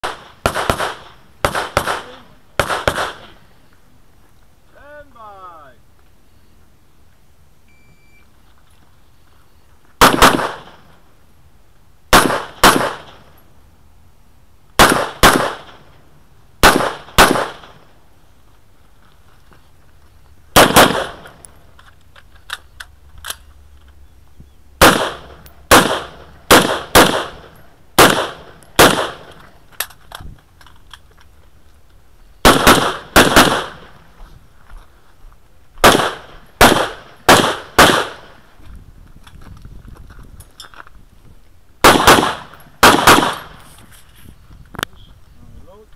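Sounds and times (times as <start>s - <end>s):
rifle shots with echo: 0.0s - 3.4s, 10.0s - 10.9s, 12.1s - 13.4s, 14.8s - 15.9s, 16.6s - 17.9s, 20.6s - 21.5s, 24.8s - 29.4s, 32.4s - 34.0s, 35.8s - 38.4s, 41.8s - 43.6s.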